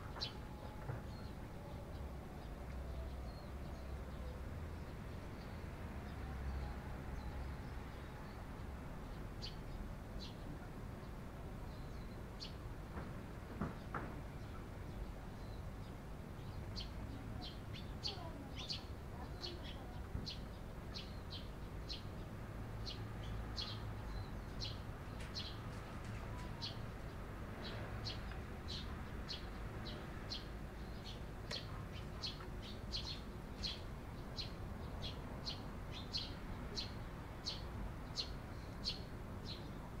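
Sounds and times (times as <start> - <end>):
sparrow chirping: 14.4 - 22.2, 22.8 - 39.9.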